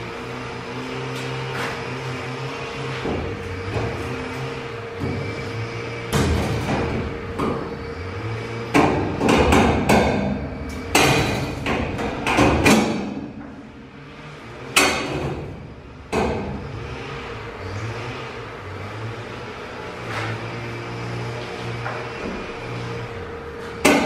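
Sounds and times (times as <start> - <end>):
metallic cracks and knocks: 10.9 - 13.2.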